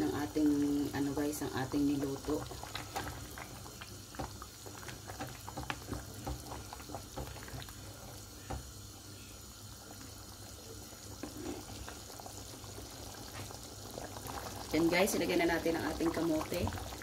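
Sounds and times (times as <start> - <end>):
broth bubbling in a pot: 0.0 - 17.0.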